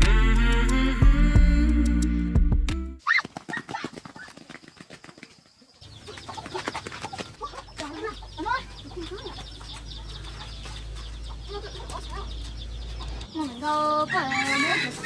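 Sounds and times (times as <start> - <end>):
chickens clucking: 3.2 - 15.0.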